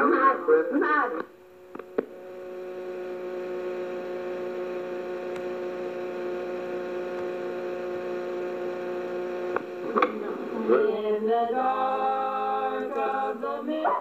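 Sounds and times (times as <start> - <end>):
tape hiss: 0.0 - 13.8
electrical hum: 0.0 - 14.0
clicks: 1.2 - 2.2, 5.2 - 5.6, 7.1 - 7.4, 9.4 - 10.2.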